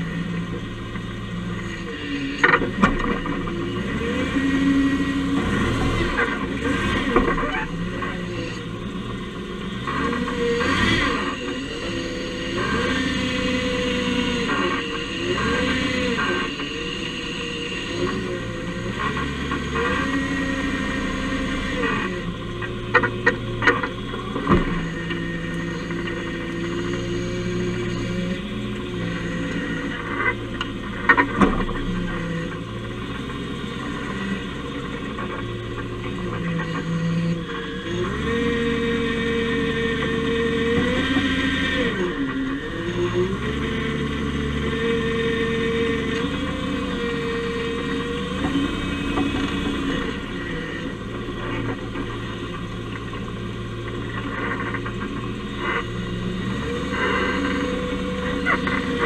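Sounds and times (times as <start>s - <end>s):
truck engine running: 0.0s - 59.0s.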